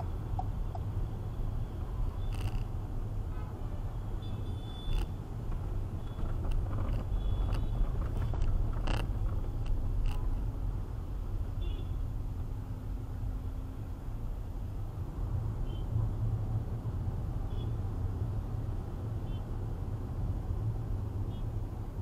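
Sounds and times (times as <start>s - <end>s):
car engine and road rumble: 0.0s - 22.0s
sharp clicks and knocks: 2.3s - 2.7s, 4.9s - 10.3s.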